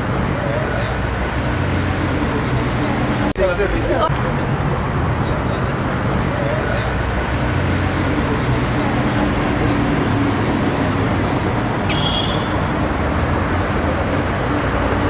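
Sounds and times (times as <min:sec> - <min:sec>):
street traffic: 0:00.0 - 0:15.0
vehicle engine humming: 0:00.0 - 0:15.0.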